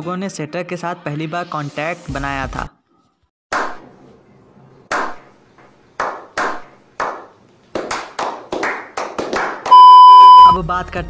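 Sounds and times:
group of men clapping: 0:06.0 - 0:09.7.

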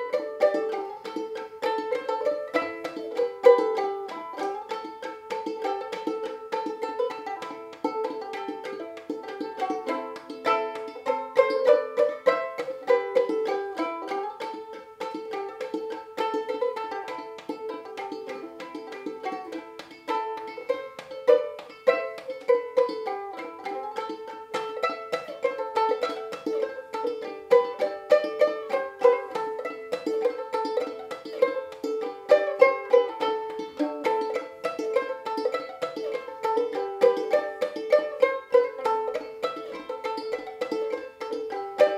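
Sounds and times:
banjo ukulele fiddle tune: 0:00.0 - 0:41.9.

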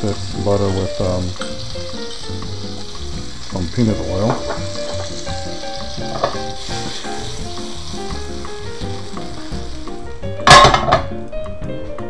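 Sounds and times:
butter and oil sizzling in a pan: 0:00.0 - 0:11.2
loud metal clank: 0:10.4 - 0:11.1.

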